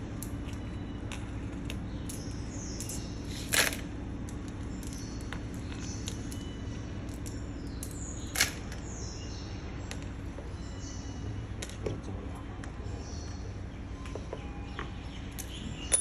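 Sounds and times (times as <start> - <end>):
steady low hum: 0.0 - 16.0
metal ball bearings clinking: 15.4 - 16.0.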